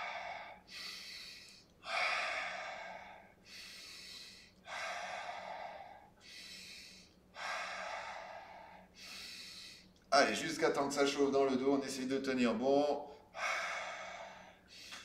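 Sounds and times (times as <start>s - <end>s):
man breathing hard: 0.0s - 10.0s, 13.1s - 15.0s.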